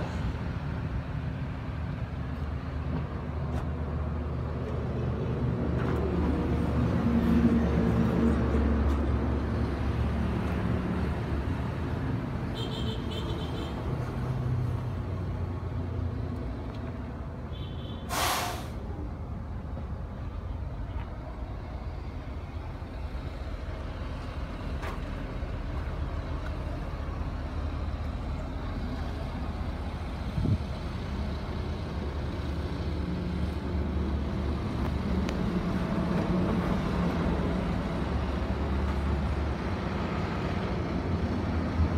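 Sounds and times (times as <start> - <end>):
air brake hiss: 18.0 - 18.9
diesel engine idling: 18.1 - 41.9.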